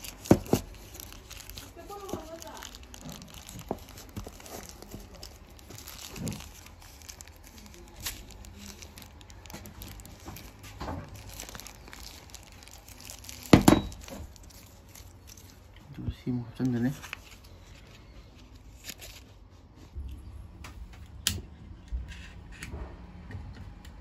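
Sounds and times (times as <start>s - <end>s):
protective wrapping rustling: 0.0s - 19.4s
wrapping crunch: 0.0s - 19.9s.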